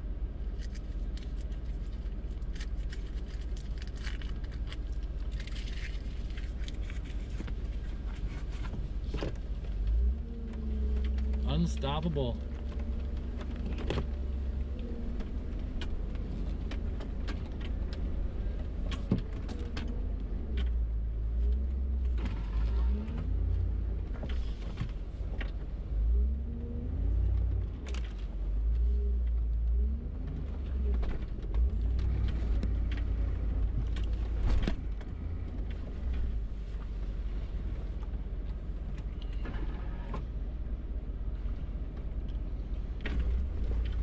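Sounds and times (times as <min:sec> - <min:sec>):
off-road vehicle engine revving: 0:09.8 - 0:36.6.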